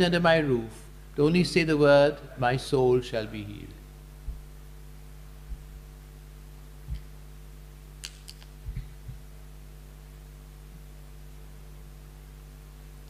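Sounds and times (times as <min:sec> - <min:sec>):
electrical mains hum: 0:00.0 - 0:13.0
soft low bumps: 0:04.2 - 0:04.5, 0:08.6 - 0:09.3.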